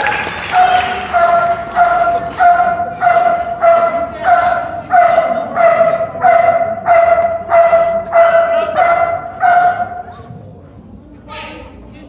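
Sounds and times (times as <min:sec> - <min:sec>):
dog barking: 0:01.2 - 0:10.1.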